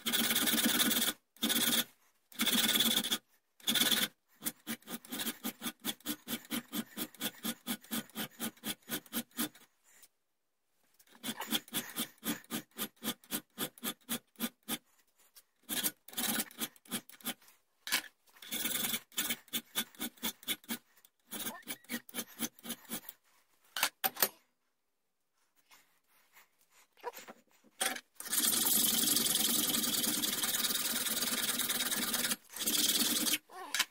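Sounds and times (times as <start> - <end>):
hand file rasping on steel: 0.0 - 9.7, 11.1 - 14.9, 15.6 - 17.4, 18.4 - 23.2.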